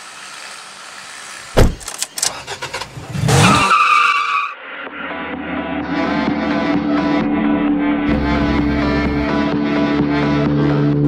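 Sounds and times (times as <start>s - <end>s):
heavy thump: 1.6s - 1.9s
car engine revving: 4.8s - 11.0s
guitar music: 5.9s - 11.0s.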